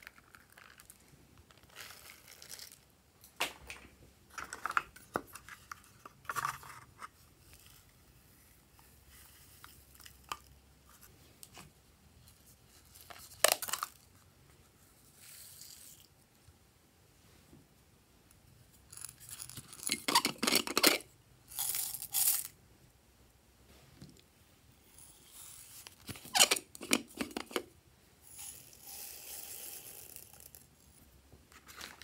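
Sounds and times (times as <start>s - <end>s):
toppings poured from plastic containers: 28.2s - 30.7s.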